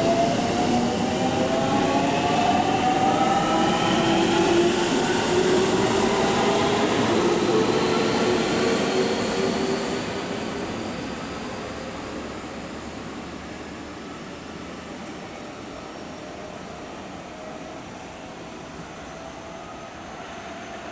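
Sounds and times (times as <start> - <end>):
train wheels on rail: 0.0 - 20.9.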